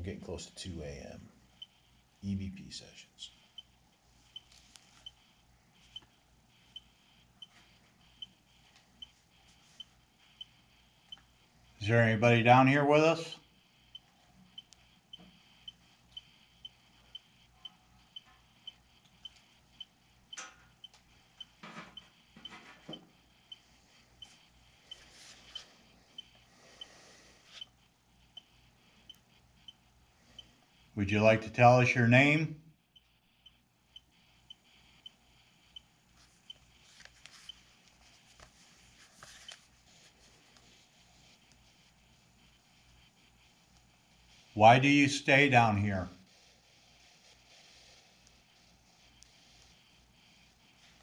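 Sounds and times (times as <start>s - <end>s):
soft rustles: 24.2s - 25.8s, 36.2s - 41.7s.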